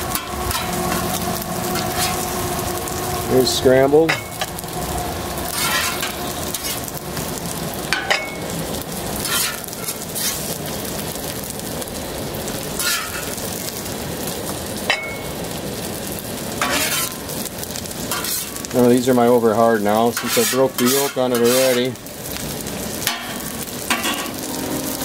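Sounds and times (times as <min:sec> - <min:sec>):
eggs sizzling on griddle: 0:00.0 - 0:25.0
metal spatula scraping: 0:00.1 - 0:02.4, 0:05.5 - 0:06.9, 0:09.2 - 0:10.5, 0:12.8 - 0:13.4, 0:16.6 - 0:17.3, 0:18.1 - 0:18.6, 0:20.1 - 0:21.9, 0:23.0 - 0:25.0.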